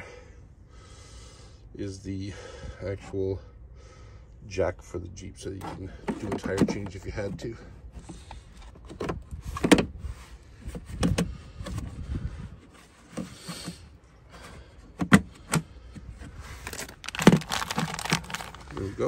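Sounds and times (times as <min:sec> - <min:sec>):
rustling handling: 0:16.0 - 0:19.0.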